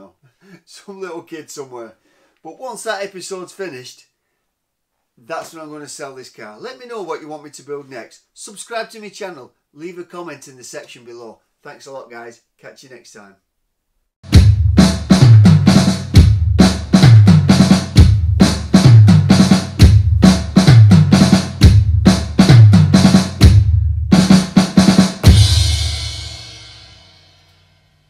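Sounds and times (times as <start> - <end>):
fast drum-kit beat: 14.2 - 27.0
cymbal crash: 25.1 - 28.0.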